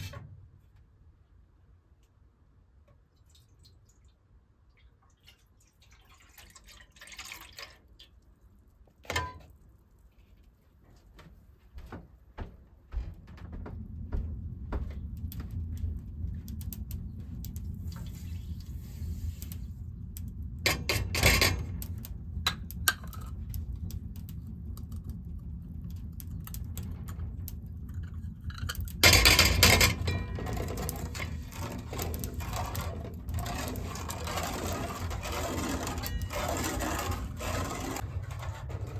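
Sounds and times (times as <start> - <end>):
milk pouring into metal pot: 4.8 - 8.3
low rumble: 12.9 - 38.9
metal ladle scraping pot: 28.1 - 38.9.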